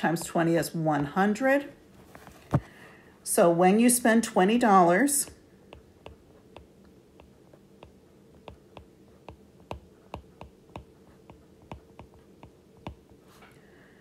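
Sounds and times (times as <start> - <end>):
stylus tapping on tablet screen: 5.3 - 13.2.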